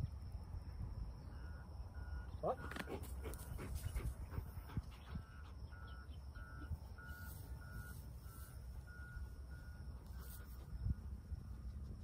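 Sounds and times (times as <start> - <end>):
electronic beep: 5.2 - 11.0.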